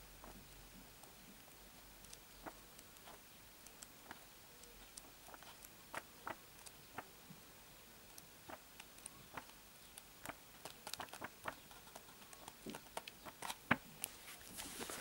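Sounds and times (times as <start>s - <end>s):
comic book pages flipping: 10.2s - 15.0s.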